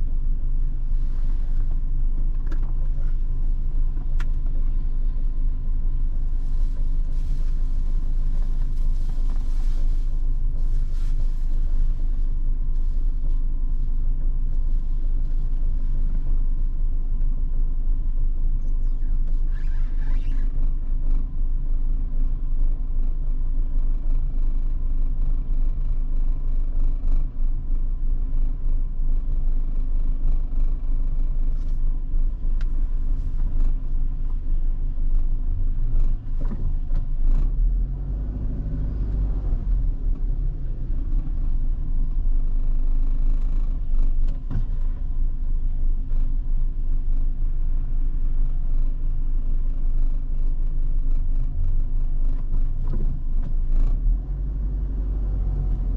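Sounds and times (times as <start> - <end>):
car engine and road noise: 0.0 - 55.9.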